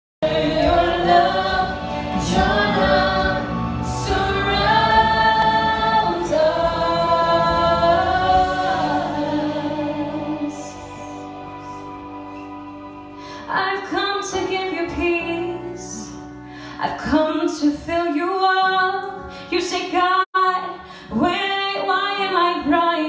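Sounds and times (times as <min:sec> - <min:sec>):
voices singing together: 0:00.2 - 0:11.5
guitar accompaniment: 0:00.2 - 0:16.6.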